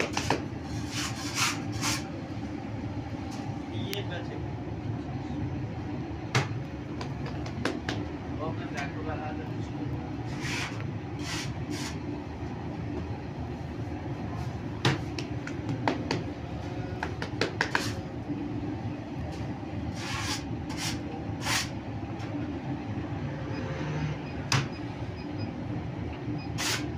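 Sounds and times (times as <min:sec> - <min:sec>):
hands working dough: 0:00.0 - 0:02.1, 0:14.8 - 0:18.0
bakery machinery hum: 0:00.0 - 0:26.9.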